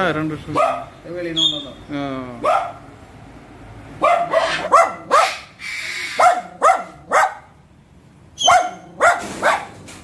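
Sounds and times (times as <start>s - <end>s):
small dog barking: 0.6s - 0.9s, 2.4s - 2.8s, 4.0s - 5.5s, 6.1s - 7.6s, 8.4s - 9.8s.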